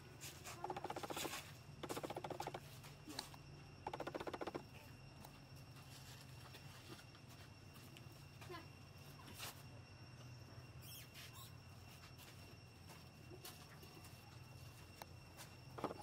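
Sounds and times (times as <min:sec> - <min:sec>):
animal chattering: 0:00.6 - 0:02.6.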